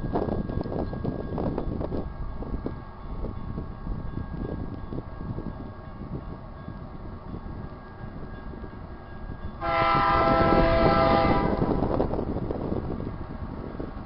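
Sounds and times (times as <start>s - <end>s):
approaching train rumble: 0.0s - 14.0s
low rumble of wind: 0.0s - 14.0s
locomotive air horn blast: 9.6s - 11.9s.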